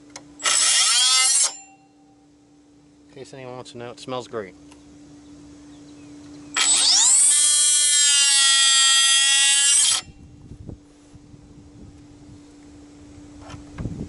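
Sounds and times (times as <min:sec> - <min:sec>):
oscillating tool whining: 0:00.4 - 0:02.0, 0:06.5 - 0:10.3.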